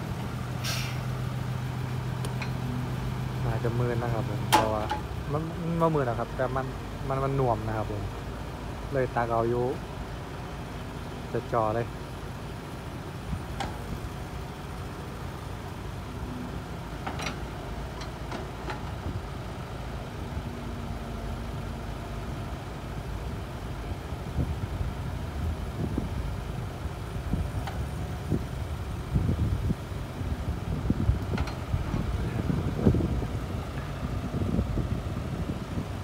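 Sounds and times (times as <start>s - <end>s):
excavator diesel engine running: 0.0s - 36.0s
sharp metal clanks and knocks: 4.5s - 5.1s.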